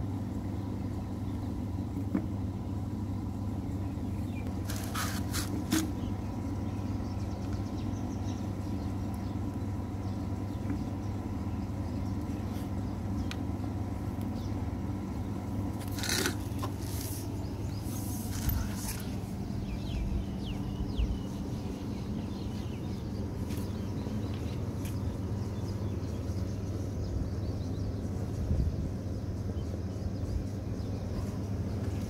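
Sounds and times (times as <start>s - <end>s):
low background hum: 0.0s - 32.0s
plastic pipe scraping and rubbing: 4.6s - 6.0s, 15.8s - 19.2s.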